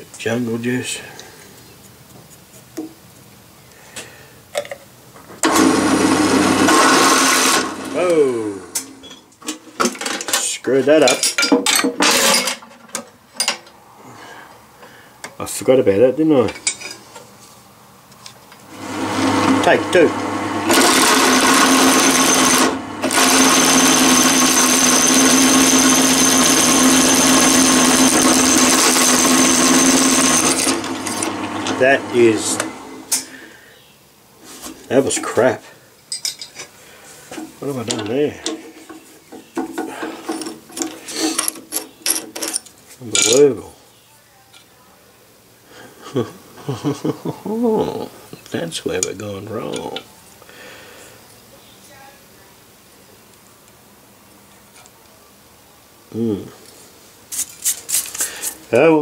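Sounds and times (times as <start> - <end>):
drill cutting into metal: 5.4 - 9.0, 18.7 - 33.2.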